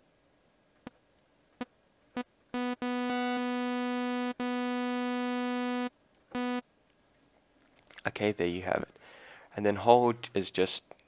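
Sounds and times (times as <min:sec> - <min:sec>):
buzzy synthesizer note: 0:02.6 - 0:06.6.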